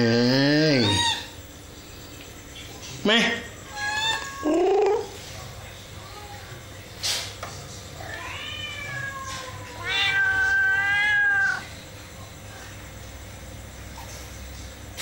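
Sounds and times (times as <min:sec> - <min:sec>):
kitten meowing: 0:00.8 - 0:01.3, 0:08.1 - 0:11.6.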